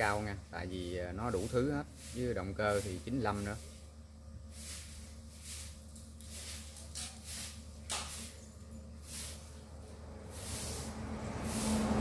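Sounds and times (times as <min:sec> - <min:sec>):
tiller engine humming: 0:04.5 - 0:12.0.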